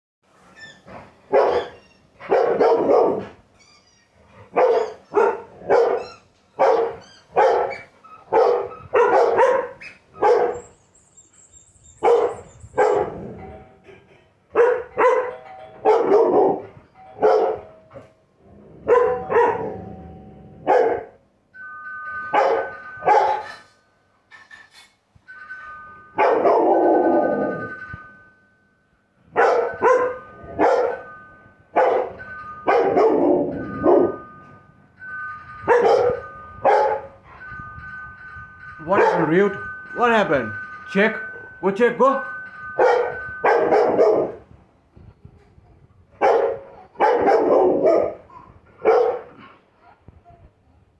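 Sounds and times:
high squeak: 0.4s - 2.2s, 3.5s - 5.2s, 5.9s - 8.9s
dogs barking: 1.3s - 3.4s, 4.4s - 10.8s, 12.0s - 13.4s, 14.5s - 17.7s, 18.8s - 19.9s, 20.6s - 21.2s, 22.3s - 23.7s, 26.2s - 27.0s, 29.4s - 31.2s, 31.8s - 34.3s, 35.6s - 37.2s, 39.0s - 39.3s, 42.7s - 44.4s, 46.2s - 49.5s
two-tone doorbell chime: 14.6s - 24.3s, 25.2s - 44.8s.

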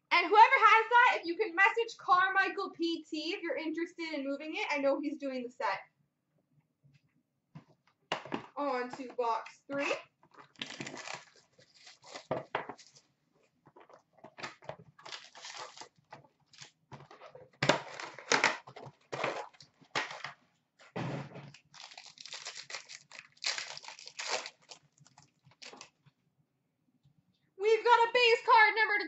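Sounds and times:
foil wrappers crinkling and tearing: 10.4s - 13.0s, 15.0s - 16.8s, 21.5s - 26.0s.

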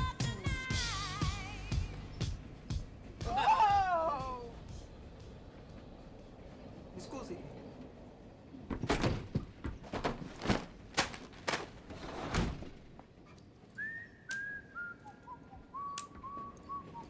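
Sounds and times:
person whistling: 13.8s - 17.0s.

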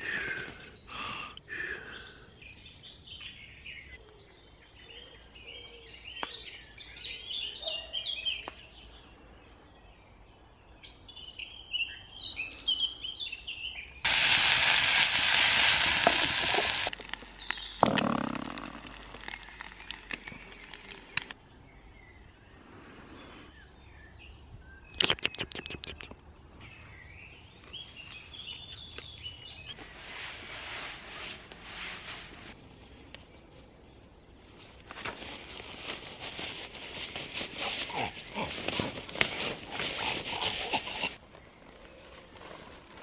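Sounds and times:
small birds chirping: 0.1s - 30.0s
loud steady hiss: 14.1s - 17.5s.

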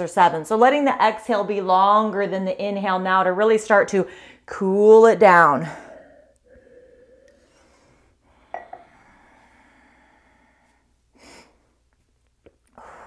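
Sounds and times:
person breathing slowly: 5.8s - 11.8s.

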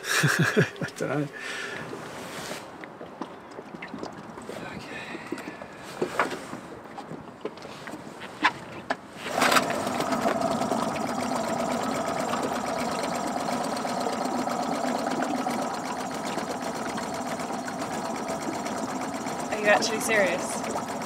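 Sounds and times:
outboard motor idling: 9.1s - 21.0s.

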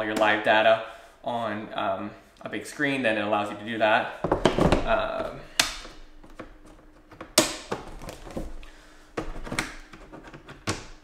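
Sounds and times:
plastic tool case clacking: 4.3s - 11.0s.

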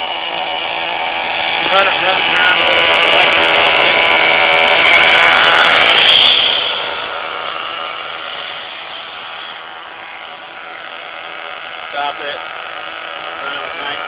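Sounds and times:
nitro engine high whine: 0.0s - 14.0s.

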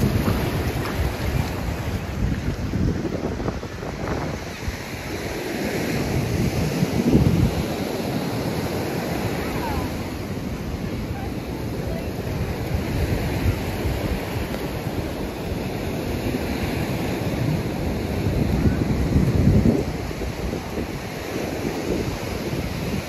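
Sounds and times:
ocean surf on sandy beach: 0.0s - 23.0s
wind gusting on microphone: 0.0s - 23.0s
faint voices: 9.2s - 12.7s.

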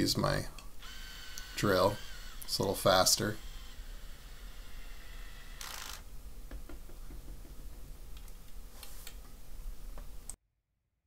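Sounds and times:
screw worked into plastic: 0.8s - 2.5s, 3.4s - 6.0s.

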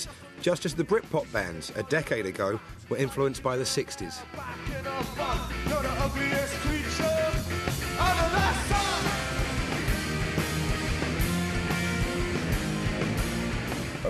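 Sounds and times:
man singing: 0.0s - 9.4s
rock band playing live: 0.0s - 14.0s.

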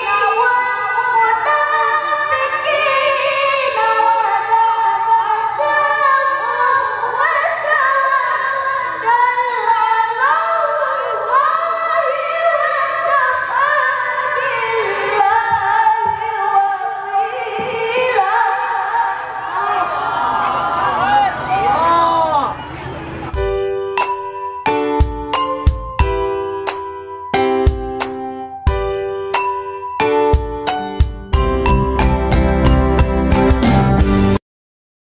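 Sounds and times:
boy reciting melodically into microphone: 0.0s - 19.4s.

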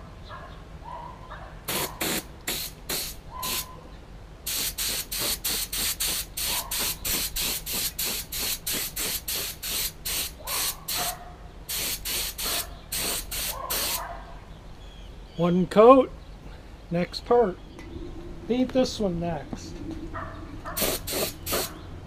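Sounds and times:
spray gun hissing bursts: 1.7s - 3.7s, 4.5s - 11.1s, 11.7s - 14.0s, 20.8s - 21.8s.

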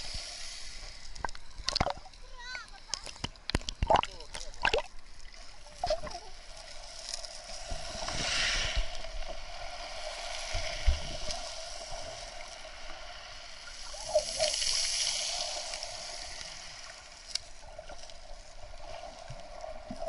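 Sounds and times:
underwater sea wash: 0.0s - 20.0s.

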